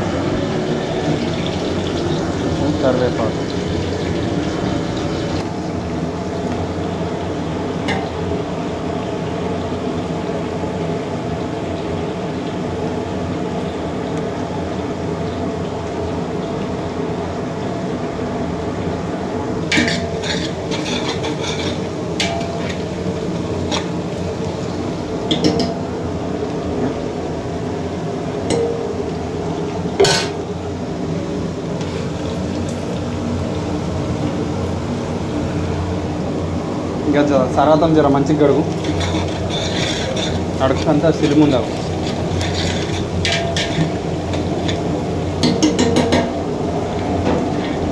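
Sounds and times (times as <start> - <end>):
onions frying in oil: 0.0 - 47.9
metal ladle scraping metal pot: 19.7 - 22.9, 38.7 - 44.9.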